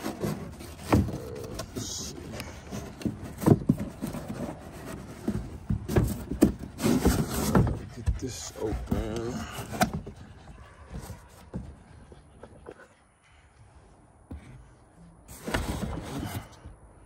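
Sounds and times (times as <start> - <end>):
cardboard box knocking and scraping: 0.0 - 11.8.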